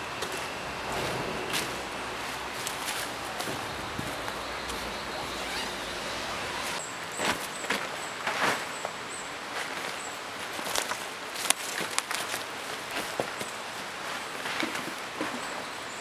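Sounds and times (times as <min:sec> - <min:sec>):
steady background hiss: 0:00.0 - 0:16.0
knocks and scuffs on dry leaves: 0:00.2 - 0:05.8
tent fabric rustling: 0:00.3 - 0:08.8.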